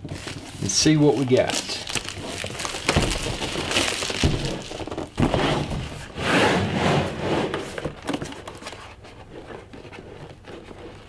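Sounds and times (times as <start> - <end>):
plastic shrink wrap crinkling: 0.0 - 6.1.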